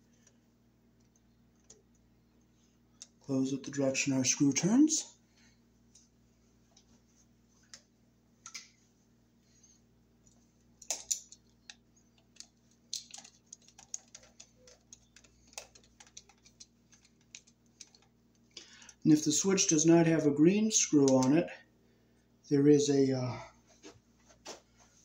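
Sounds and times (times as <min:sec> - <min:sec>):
screwdriver and wire clicking on screw: 0:10.8 - 0:18.1, 0:21.0 - 0:21.4.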